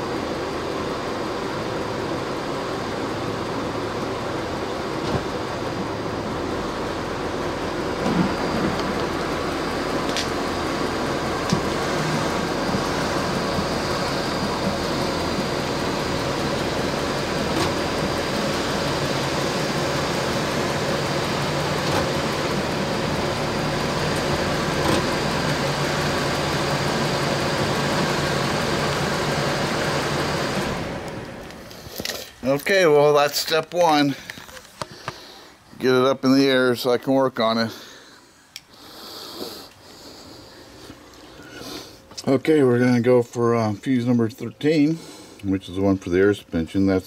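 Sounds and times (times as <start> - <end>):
hydraulic lift pump motor humming: 2.8 - 31.9.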